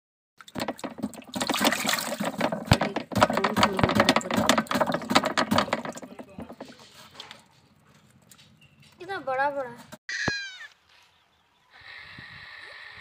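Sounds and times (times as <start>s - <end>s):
fish splashing in water: 0.4s - 2.6s.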